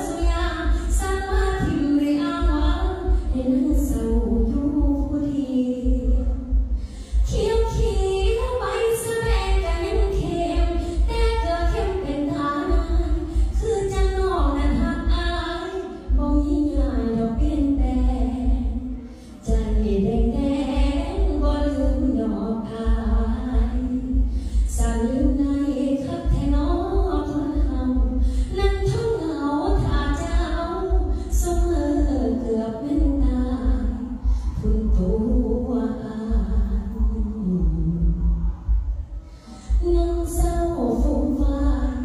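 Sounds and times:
woman singing into microphone: 0.0 - 42.0
low pulsing bass: 2.4 - 12.1, 12.7 - 25.6, 33.0 - 42.0.

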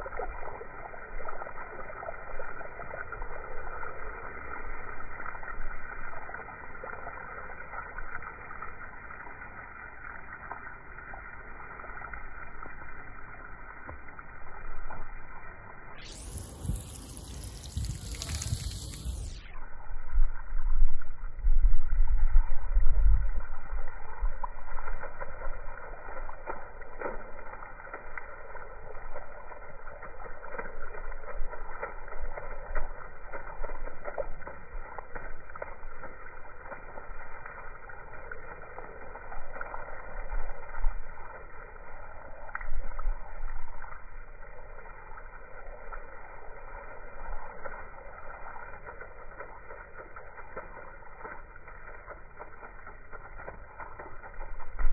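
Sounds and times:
slowed water spray splashing: 0.0 - 54.9
low rumble: 14.4 - 25.8.

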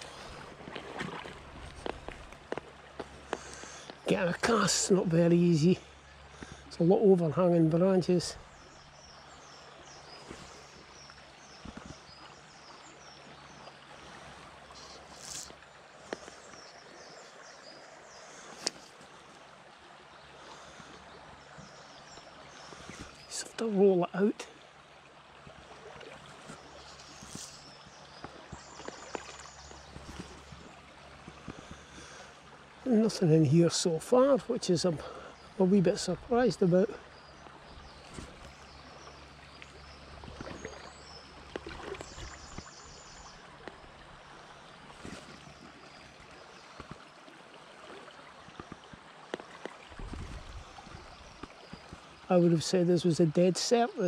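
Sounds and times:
stream water running: 0.0 - 54.0
faint high bird chirps: 14.7 - 15.5.

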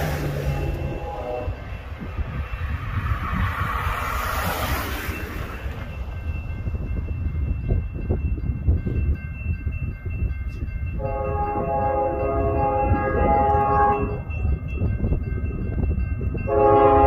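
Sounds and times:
distant locomotive horn: 0.0 - 2.1, 11.0 - 14.4, 16.5 - 17.0.

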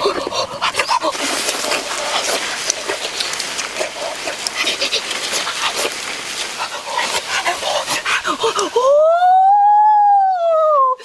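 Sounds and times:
crackling hiss: 0.0 - 11.0
people making wordless cries: 8.2 - 11.0.

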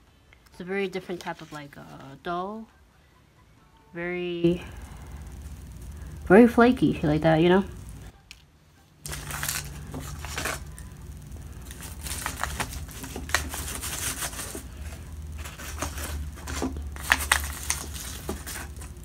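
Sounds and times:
crust crackling: 0.3 - 2.7, 4.4 - 19.0
knife cutting on paper wrapper: 11.7 - 19.0.

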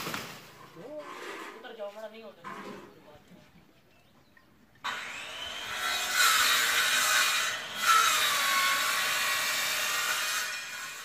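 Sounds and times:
power saw cutting branch: 4.9 - 11.0.

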